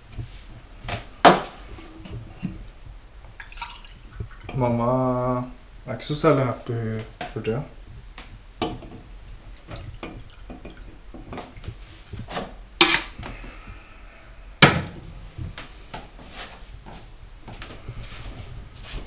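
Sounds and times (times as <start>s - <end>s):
water pouring: 3.3s - 4.6s, 9.5s - 11.9s.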